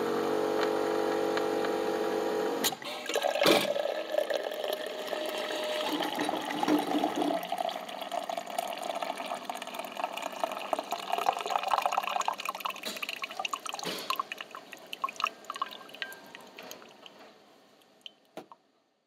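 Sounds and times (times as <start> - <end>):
coffee machine brewing: 0.0 - 17.3
liquid gurgling and dripping: 3.1 - 17.2.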